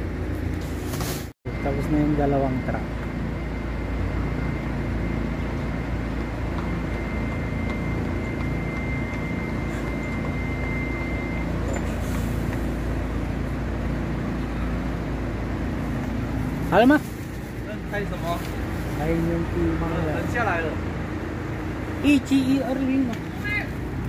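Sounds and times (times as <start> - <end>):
thin high whine: 1.5 - 13.6
truck engine idling: 1.5 - 24.0.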